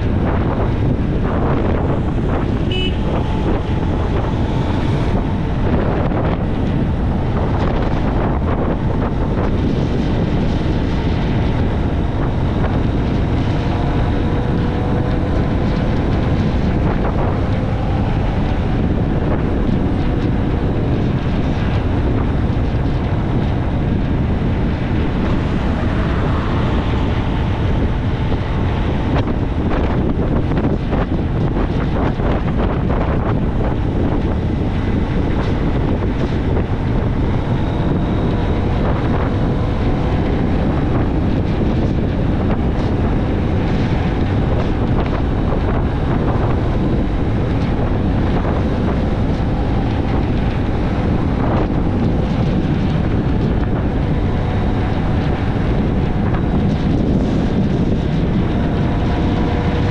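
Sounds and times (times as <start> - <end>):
faint motorbike engine: 0.0 - 59.9
wind buffeting microphone: 0.0 - 59.9.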